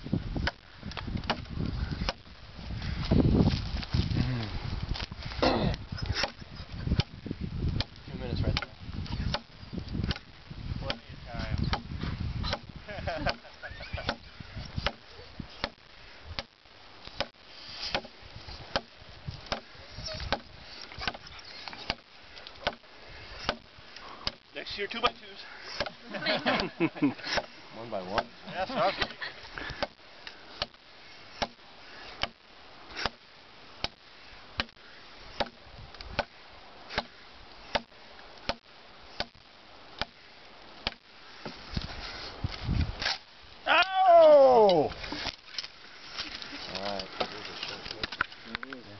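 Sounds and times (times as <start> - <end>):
knife chopping into wood: 1.2 - 2.2, 12.5 - 12.7, 14.8 - 15.0, 17.9 - 18.1, 18.7 - 18.9, 19.5 - 19.7, 20.3 - 21.2, 23.4 - 24.4, 25.8 - 26.0, 31.4 - 31.6, 33.0 - 33.2, 35.4 - 36.3, 36.9 - 37.1.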